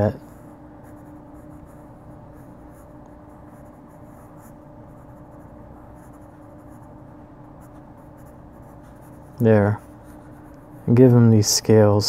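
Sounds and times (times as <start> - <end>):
pencil scratching on paper: 0.0 - 11.2
steady low hum: 0.0 - 12.0.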